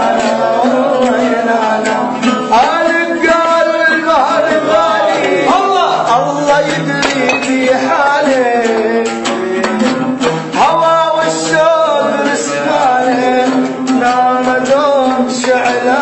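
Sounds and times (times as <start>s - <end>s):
man singing ornamented melody: 0.0s - 16.0s
plucked string instrument: 0.0s - 16.0s.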